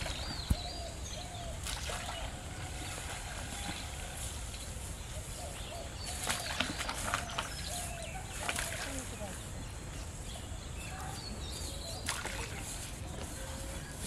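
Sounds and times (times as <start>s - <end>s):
birds calling: 0.0s - 14.0s
light splash in water: 1.6s - 4.6s, 6.1s - 9.5s, 12.0s - 12.9s.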